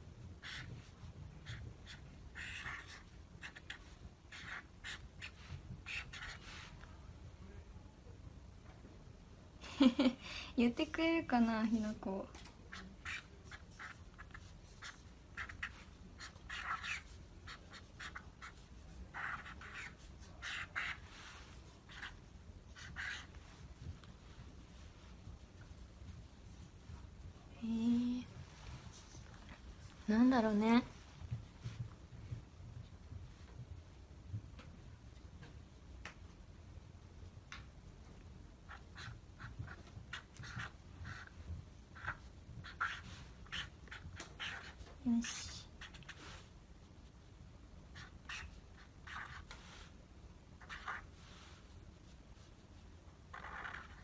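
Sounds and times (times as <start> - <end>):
pen scratching on paper: 0.4 - 6.5, 12.7 - 23.4, 38.7 - 41.4, 42.0 - 46.3, 47.9 - 49.8, 50.6 - 51.2, 53.3 - 54.0.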